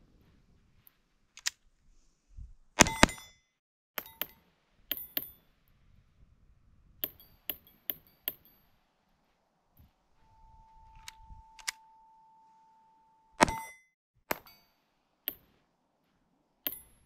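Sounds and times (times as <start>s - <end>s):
metallic ping from steel targets: 2.8s - 3.4s, 4.0s - 5.4s, 7.0s - 8.8s, 13.4s - 15.5s, 16.6s - 17.0s
faint steady tone: 4.0s - 17.0s.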